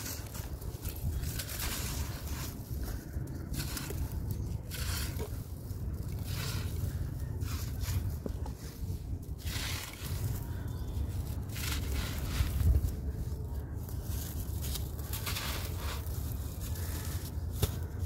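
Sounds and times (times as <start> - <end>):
sandy chunks crumbling: 0.0 - 18.0.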